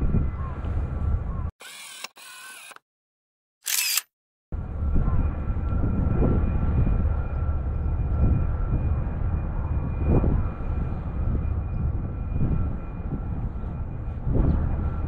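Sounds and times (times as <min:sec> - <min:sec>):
low outdoor rumble: 0:00.0 - 0:01.5, 0:04.6 - 0:15.0.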